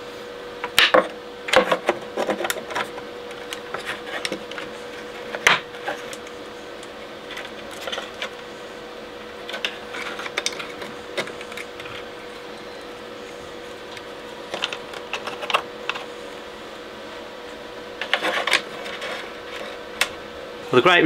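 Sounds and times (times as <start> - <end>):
faint steady hum: 0.0 - 21.0
parts knocking and rattling: 0.7 - 6.3, 7.2 - 8.4, 9.4 - 12.4, 13.9 - 16.1.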